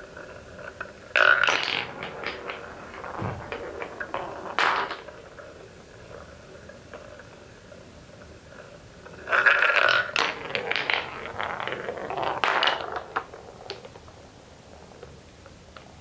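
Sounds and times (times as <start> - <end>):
marble rattling down wooden track: 0.0 - 14.2
marble circling wooden funnel: 0.0 - 15.1
wooden balls knocking together: 0.4 - 7.1, 9.3 - 14.1.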